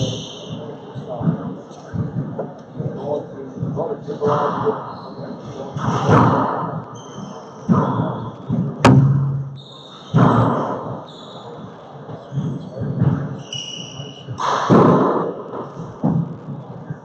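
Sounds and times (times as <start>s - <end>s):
sneakers squeaking on hardwood: 4.8s - 14.5s.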